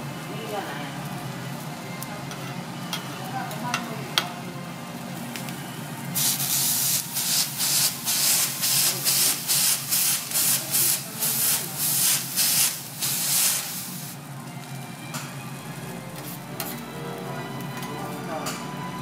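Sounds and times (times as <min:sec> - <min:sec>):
hot plate hissing: 0:05.2 - 0:16.8
cloth rubbing on hot griddle: 0:06.2 - 0:14.2.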